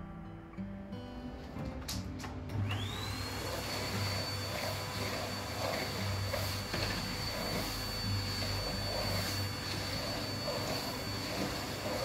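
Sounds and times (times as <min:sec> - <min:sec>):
vacuum cleaner motor whine: 0:02.6 - 0:12.0.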